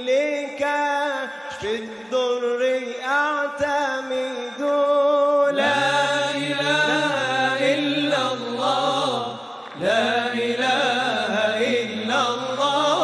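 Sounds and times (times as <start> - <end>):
men chanting: 5.5 - 13.0.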